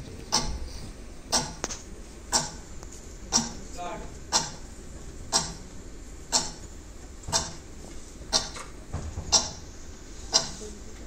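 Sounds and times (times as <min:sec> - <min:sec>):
clock ticking: 0:00.3 - 0:00.6, 0:01.3 - 0:01.7, 0:02.3 - 0:02.7, 0:03.3 - 0:03.6, 0:04.3 - 0:04.7, 0:05.3 - 0:05.6, 0:06.3 - 0:06.7, 0:07.3 - 0:07.6, 0:09.3 - 0:09.6, 0:10.3 - 0:10.6.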